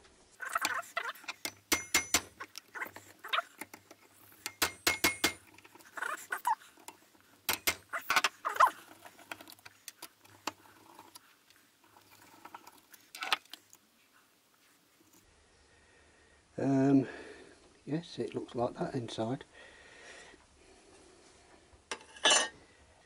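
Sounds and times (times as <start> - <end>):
metallic clicks and knocks: 0.6 - 5.9, 6.8 - 11.2.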